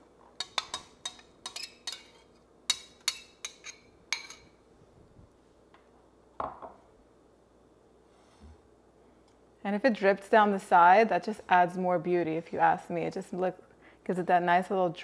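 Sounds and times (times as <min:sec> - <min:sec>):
metal spatula clinking on glass bowl: 0:00.4 - 0:04.5
glass bowl set down on wood: 0:06.4 - 0:06.8.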